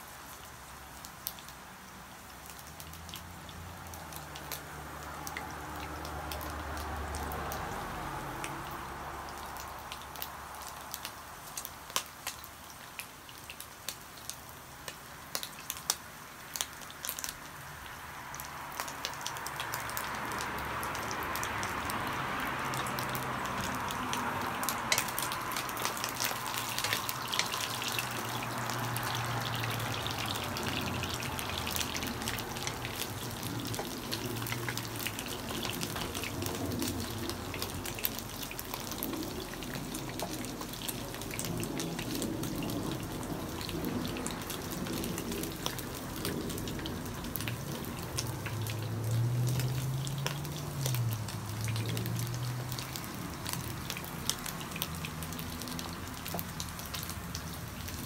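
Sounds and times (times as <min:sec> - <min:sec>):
food sizzling in hot oil: 0:00.0 - 0:58.0
oil crackling pops: 0:18.4 - 0:58.0.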